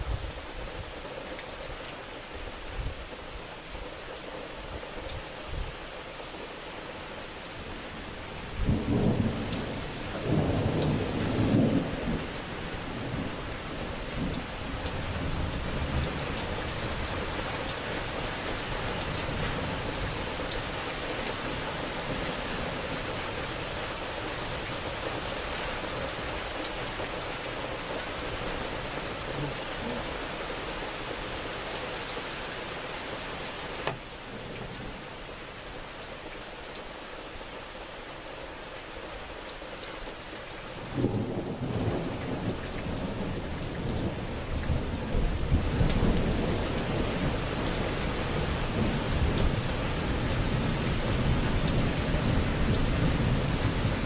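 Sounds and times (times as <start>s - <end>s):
steady rain falling: 0.0s - 54.0s
thunder rumbling: 8.6s - 12.4s.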